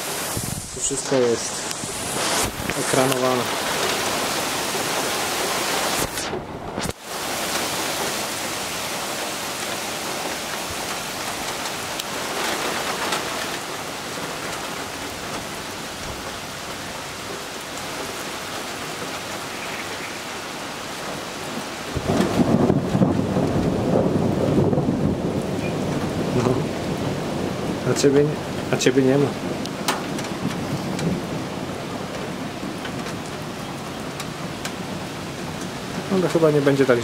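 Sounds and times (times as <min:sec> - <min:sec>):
heavy rain hissing: 0:00.0 - 0:37.0
low rumble of thunder: 0:09.6 - 0:18.0, 0:21.0 - 0:36.4.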